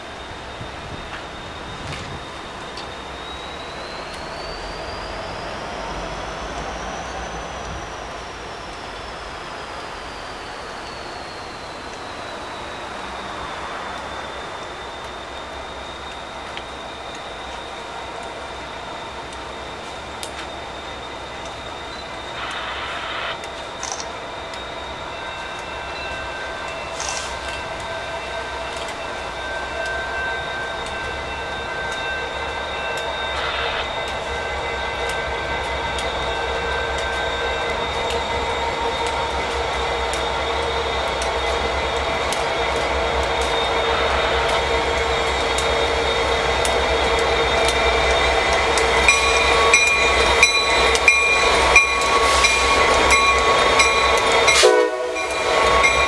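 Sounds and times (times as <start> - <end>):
diesel locomotive engines droning: 0.0 - 56.0
train wheels clicking over rail joints: 25.4 - 56.0.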